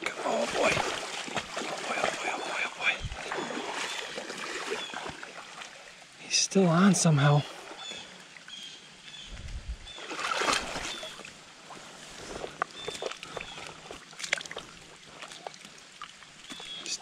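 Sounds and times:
sharp water splashes: 0:00.0 - 0:05.9, 0:09.9 - 0:11.8, 0:12.8 - 0:17.0
creek water sloshing: 0:00.0 - 0:17.0.

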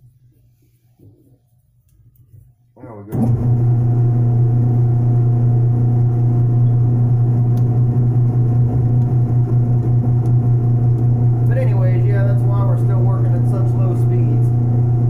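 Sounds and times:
metal lathe motor hum: 0:03.2 - 0:15.0.

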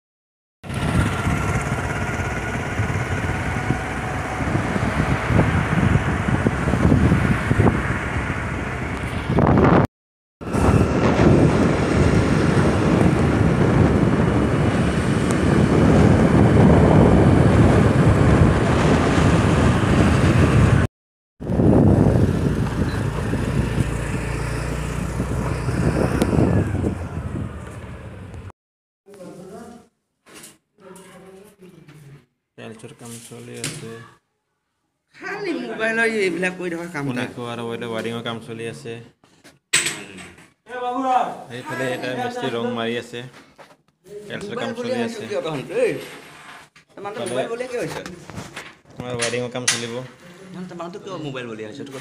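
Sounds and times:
scooter engine: 0:00.6 - 0:09.4, 0:21.5 - 0:28.5
passing traffic: 0:00.6 - 0:09.8, 0:10.4 - 0:28.5
wind buffeting microphone: 0:00.7 - 0:28.5.

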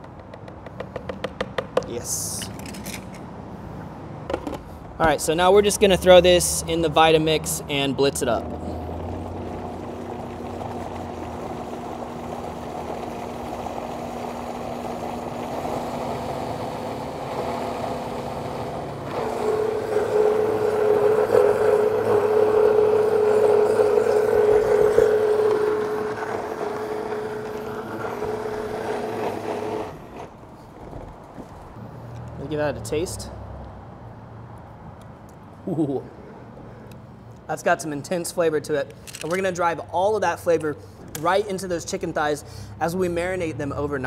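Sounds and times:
blender motor running: 0:08.4 - 0:30.3.

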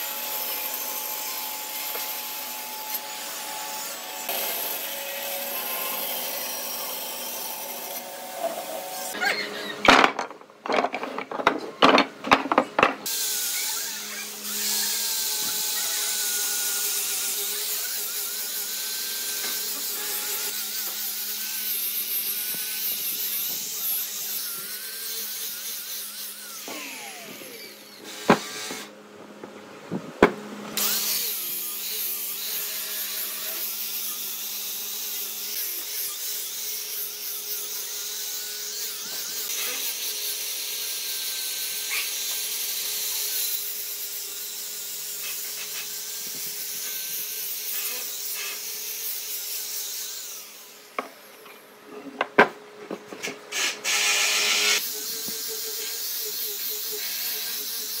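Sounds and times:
angle grinder sanding wood: 0:00.0 - 0:09.7, 0:13.0 - 0:28.9, 0:30.8 - 0:51.5, 0:53.2 - 0:58.0
wooden pieces knocking together: 0:09.8 - 0:13.0.

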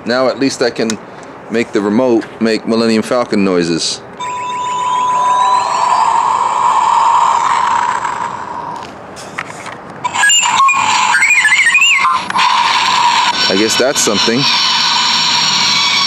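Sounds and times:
warbling electronic sequence: 0:04.2 - 0:08.9, 0:10.0 - 0:16.0
rushing engine-like noise: 0:04.2 - 0:16.0.

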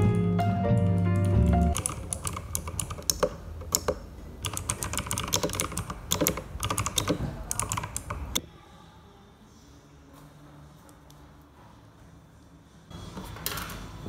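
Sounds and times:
mechanical keyboard typing: 0:01.2 - 0:08.4.

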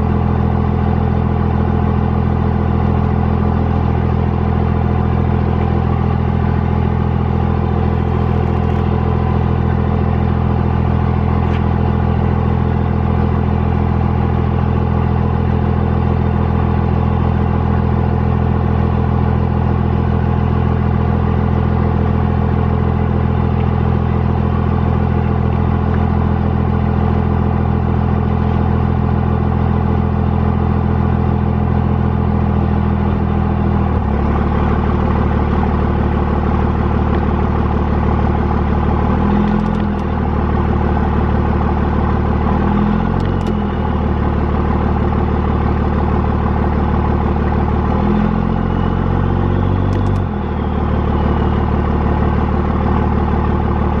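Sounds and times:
truck engine running: 0:00.0 - 0:54.0
short click: 0:39.4 - 0:40.1, 0:43.2 - 0:43.7, 0:49.9 - 0:50.3.

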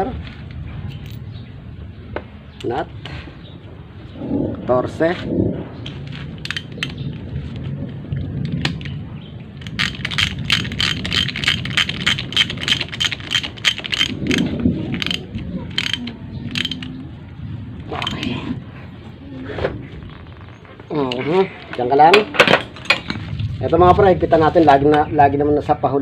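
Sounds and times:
ratchet wrench clicking: 0:09.6 - 0:16.9.

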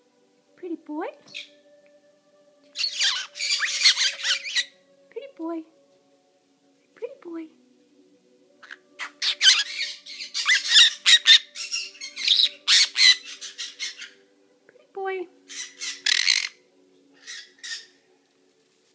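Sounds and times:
parrot squawking: 0:02.8 - 0:04.8, 0:08.6 - 0:14.2, 0:15.5 - 0:16.6, 0:17.2 - 0:18.0.

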